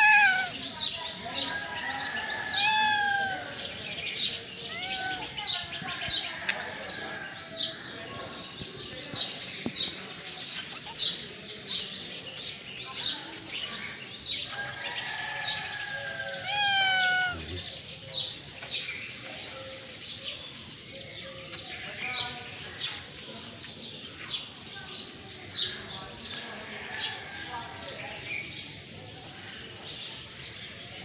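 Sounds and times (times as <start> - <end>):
cat meowing: 0.0 - 0.6, 2.5 - 3.5, 4.7 - 5.4, 16.3 - 17.7
small birds chirping: 0.0 - 31.0.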